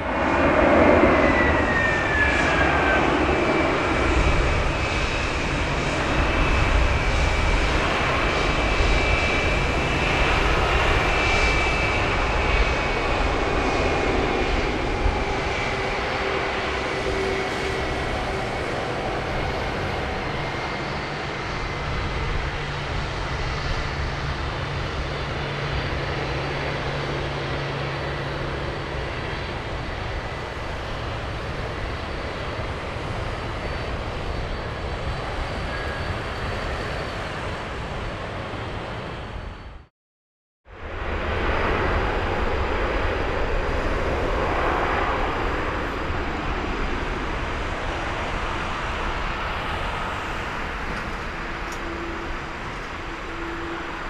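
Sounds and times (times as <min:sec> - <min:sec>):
jet engines whining: 0:00.0 - 0:39.9, 0:40.8 - 0:54.0.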